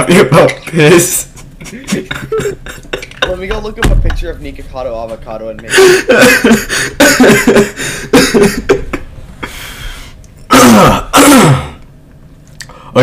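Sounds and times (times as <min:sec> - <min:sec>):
young man laughing loudly: 0:01.4 - 0:03.8, 0:05.6 - 0:09.1
breathy intake: 0:09.4 - 0:11.8.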